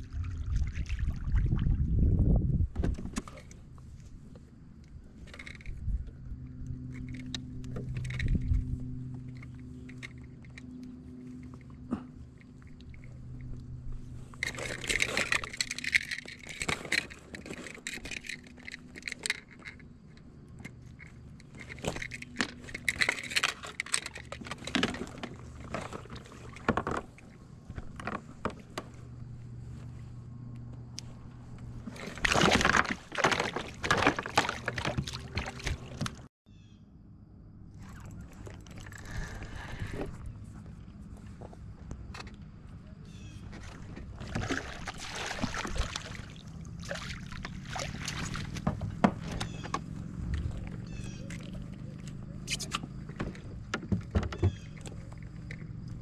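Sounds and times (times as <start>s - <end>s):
water splashing: 0.0s - 1.9s, 31.9s - 36.3s, 43.6s - 53.2s
low steady hum: 0.0s - 56.0s.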